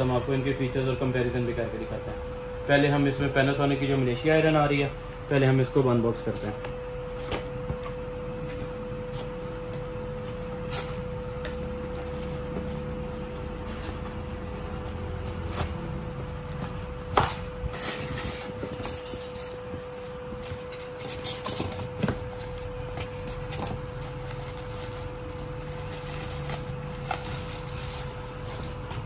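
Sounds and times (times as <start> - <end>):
packaging rustling: 8.6 - 29.0.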